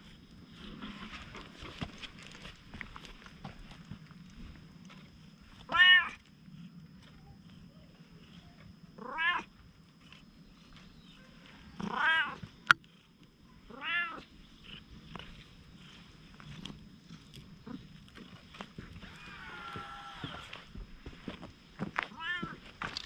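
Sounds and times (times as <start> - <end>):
cat meowing: 5.7 - 6.2, 9.0 - 9.5, 13.7 - 14.2, 22.1 - 22.6.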